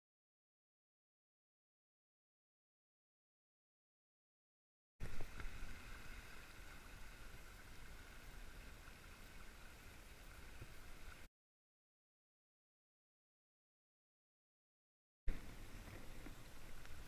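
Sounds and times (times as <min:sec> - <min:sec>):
wind and water rumble: 0:05.0 - 0:11.3, 0:15.3 - 0:17.0.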